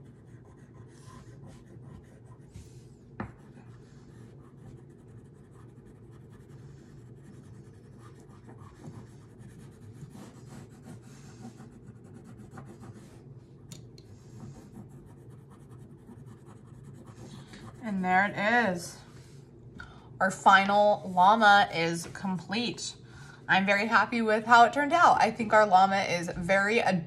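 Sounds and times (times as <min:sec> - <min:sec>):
crayon scratching on paper: 0:00.0 - 0:13.3, 0:14.0 - 0:18.4.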